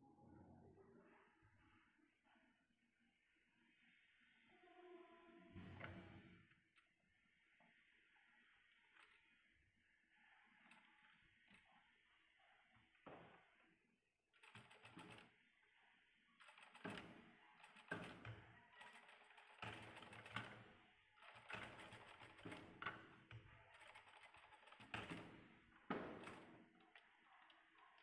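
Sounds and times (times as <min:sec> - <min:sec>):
sewing machine needle clatter: 0:14.4 - 0:15.4, 0:16.4 - 0:28.0.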